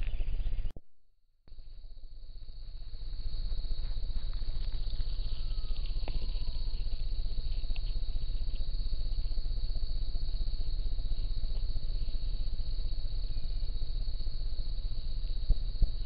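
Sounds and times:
crickets chirping: 1.5 - 16.0
faint whistled note: 5.2 - 6.8.

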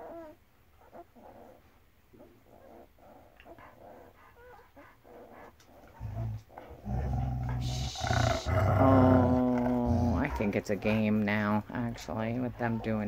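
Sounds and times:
dog growling deeply: 5.9 - 13.0.

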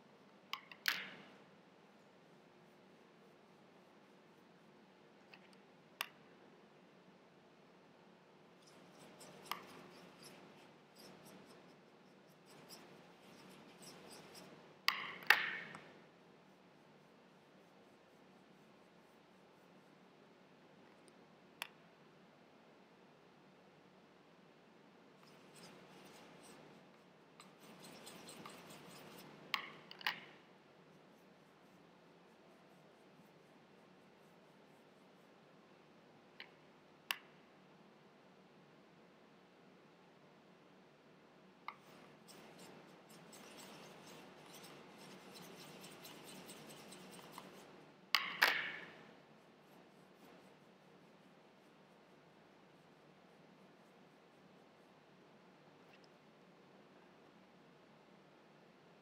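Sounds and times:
paintbrush scraping in palette: 8.6 - 19.9, 25.2 - 35.4, 41.7 - 54.6
paintbrush swishing on palette: 25.2 - 30.0, 41.8 - 47.9.

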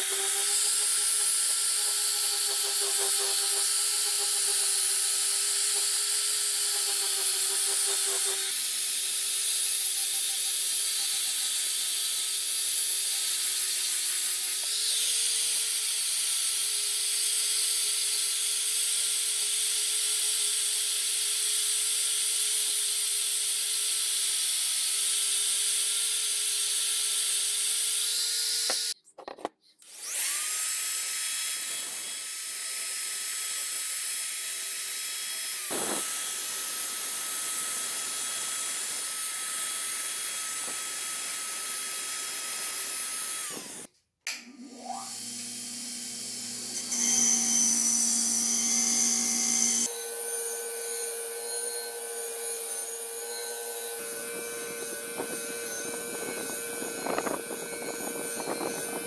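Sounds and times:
angle grinder sanding steel: 0.0 - 16.6, 29.9 - 43.9, 45.0 - 59.0
electric drill whine: 0.0 - 29.0, 29.8 - 43.9, 44.6 - 59.0.

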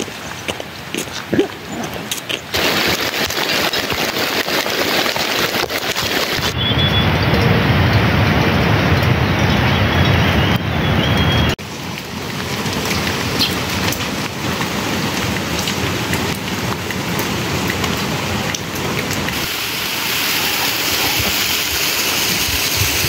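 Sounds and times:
steady rain falling: 0.0 - 9.7, 11.4 - 23.0.

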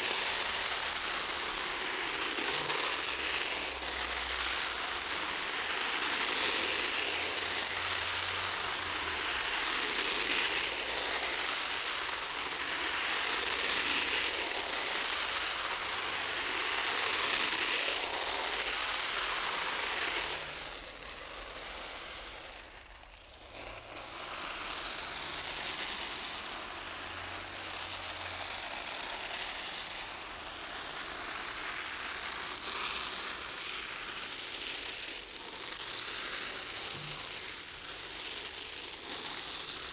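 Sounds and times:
rice grains rattling on metal sheet: 0.0 - 39.9.

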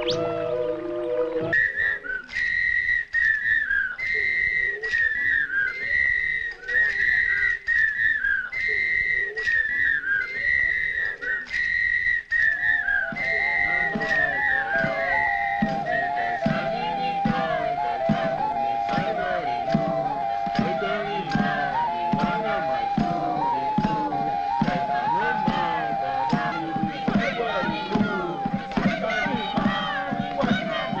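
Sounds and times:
lower musical notes: 0.0 - 1.6
high whistle-like tone: 0.0 - 31.0.

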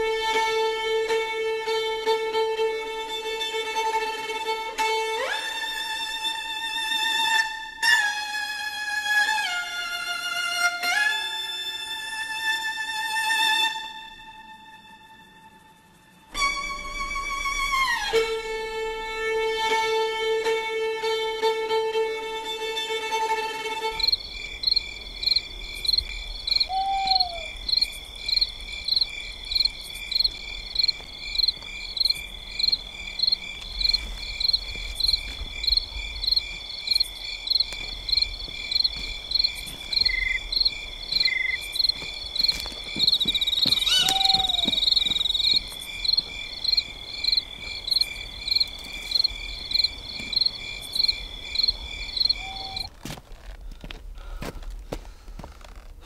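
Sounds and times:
pulsing cricket chirp: 13.3 - 19.3, 22.4 - 53.0
crickets trilling: 22.4 - 54.8
short falling call: 43.8 - 45.0.

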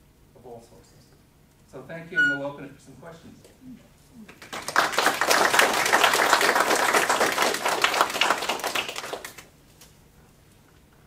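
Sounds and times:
audience applauding: 4.3 - 9.5.

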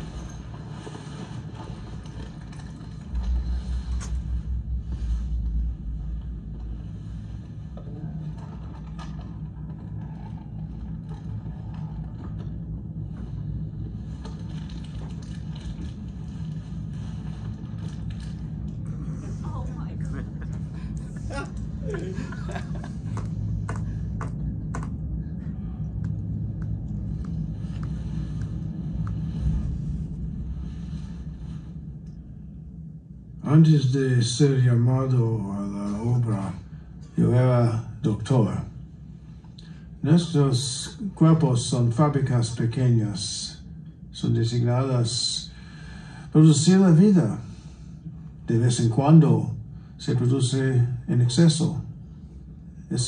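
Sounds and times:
faint scrapes: 0.0 - 19.7
low steady rumble: 0.0 - 53.0.

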